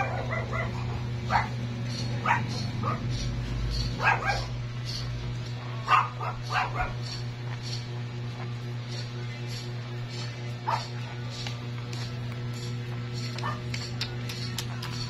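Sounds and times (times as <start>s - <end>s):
puppies whimpering and yipping: 0.0s - 5.1s, 5.8s - 7.2s.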